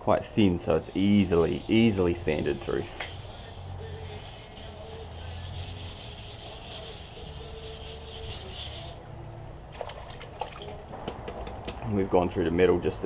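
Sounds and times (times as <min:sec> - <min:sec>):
sandpaper rasping on wet surface: 0:00.8 - 0:09.0.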